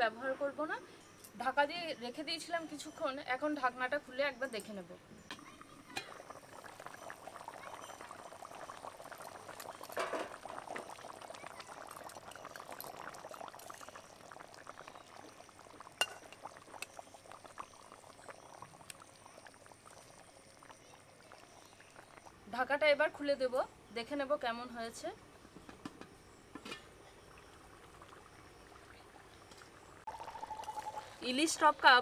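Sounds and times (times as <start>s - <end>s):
gravy bubbles popping: 5.3s - 22.4s, 27.3s - 31.8s.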